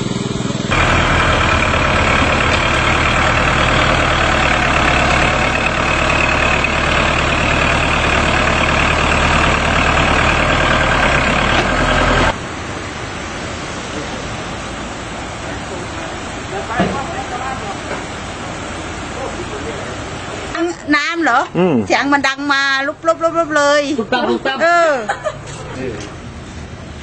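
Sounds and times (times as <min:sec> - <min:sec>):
tractor diesel engine running: 0:00.0 - 0:21.2
rush of floodwater: 0:00.7 - 0:27.0.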